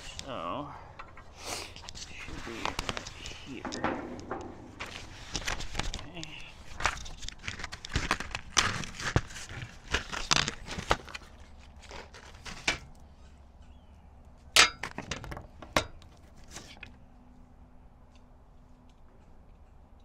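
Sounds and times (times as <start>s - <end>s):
sharp metal knocks: 3.5s - 4.8s, 14.6s - 15.1s.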